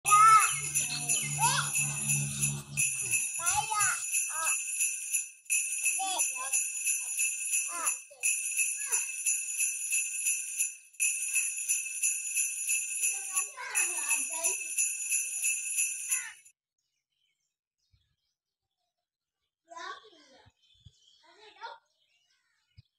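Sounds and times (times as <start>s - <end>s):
small bells shaken in rhythm: 0.0s - 16.5s.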